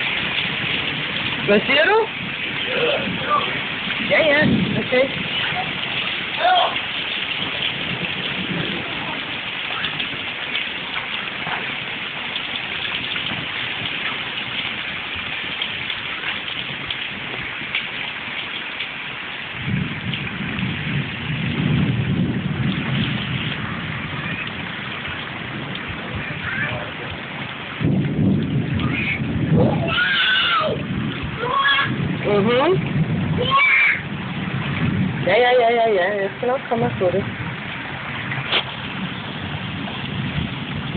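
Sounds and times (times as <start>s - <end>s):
heavy rain pouring: 0.0s - 40.9s
thunder rumbling: 0.0s - 40.9s.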